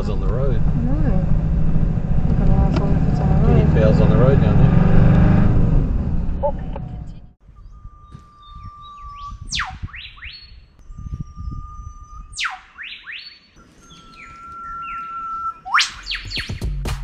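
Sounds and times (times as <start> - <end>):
low rumble: 0.0 - 10.0
songbird singing: 6.5 - 16.8.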